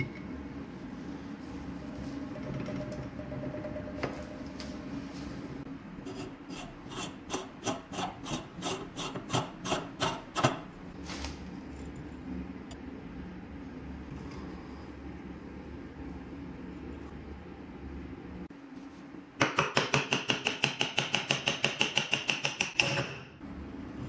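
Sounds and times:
scraping strokes on rusty metal: 6.0 - 10.6.

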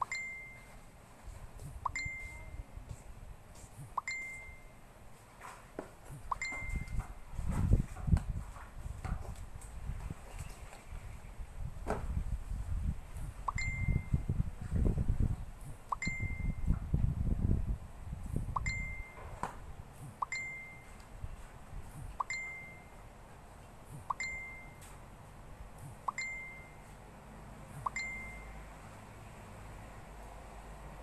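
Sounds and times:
high ding-like note: 0.1 - 0.8, 1.9 - 2.6, 24.1 - 24.8, 26.1 - 26.8, 27.9 - 28.6.

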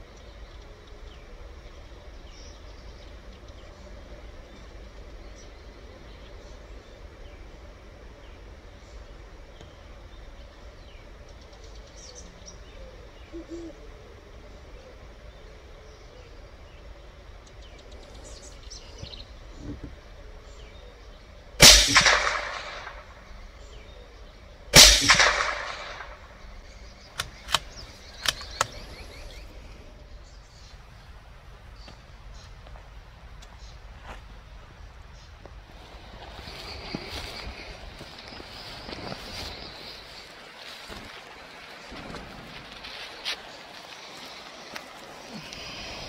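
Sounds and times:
rifle shots: 21.6 - 23.2, 24.8 - 26.4.

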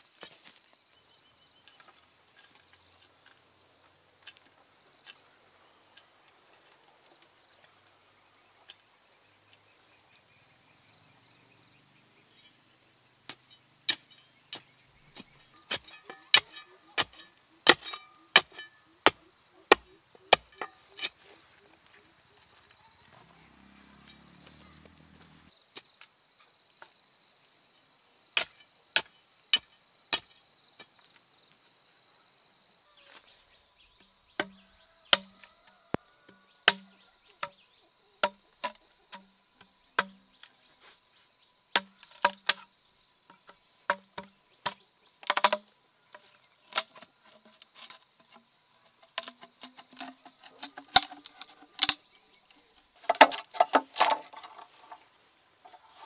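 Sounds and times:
insect buzz: 0.0 - 16.0, 17.2 - 56.0
machete chopping bamboo: 34.4 - 35.6, 36.6 - 37.6, 38.2 - 39.3, 40.0 - 40.5, 41.7 - 42.7, 43.9 - 45.7, 49.1 - 52.0, 53.0 - 54.6
machete splitting bamboo: 34.4 - 35.6, 36.6 - 37.6, 40.0 - 40.5, 41.8 - 42.7, 43.9 - 45.7, 49.0 - 55.0
bar knocking in soil: 38.2 - 40.6, 41.8 - 42.7, 49.0 - 56.0.

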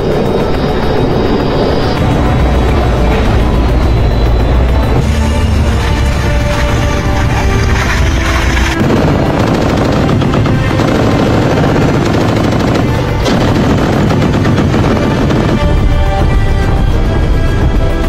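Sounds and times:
music: 0.0 - 18.0
machine gun firing in bursts: 8.6 - 16.1.

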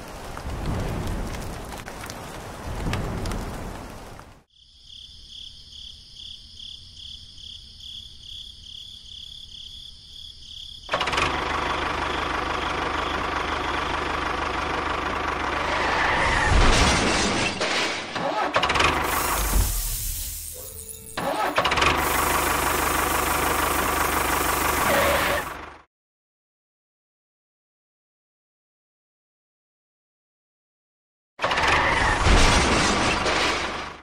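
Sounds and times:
rain hiss: 0.0 - 4.5, 18.8 - 25.6
miniature tractor engine running: 10.9 - 15.6, 21.2 - 25.8.

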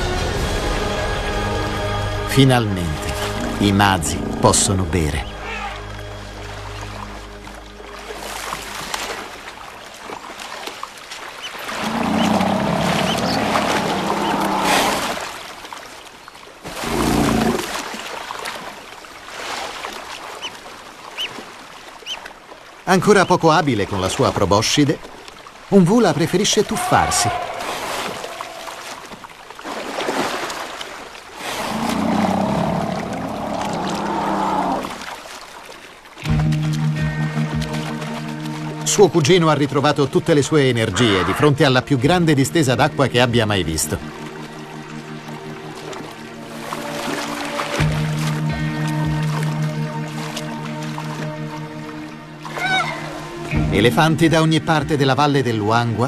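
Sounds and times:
music: 0.0 - 9.5, 36.2 - 56.0
low elephant call: 5.3 - 5.9, 11.7 - 15.2, 26.8 - 29.1
elephants splashing in water: 5.3 - 53.6.

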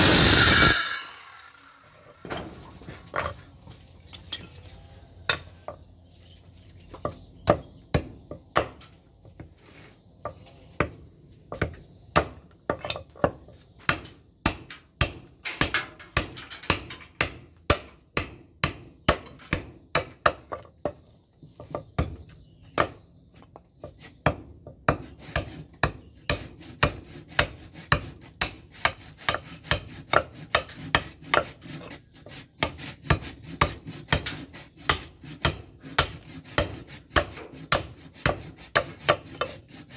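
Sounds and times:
file rasping on steel blade: 25.0 - 39.9.

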